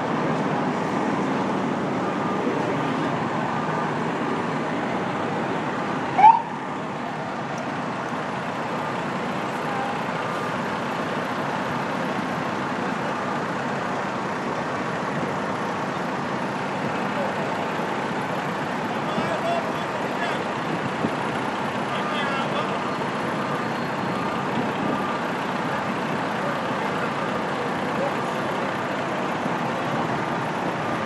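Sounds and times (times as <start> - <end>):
fire truck engines running: 0.0 - 31.0
street traffic: 0.0 - 31.0
rising siren whoop: 6.2 - 6.6.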